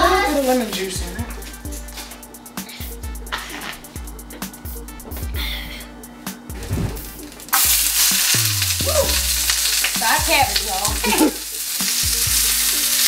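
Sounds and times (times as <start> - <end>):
onions sizzling in hot oil: 7.3 - 13.0.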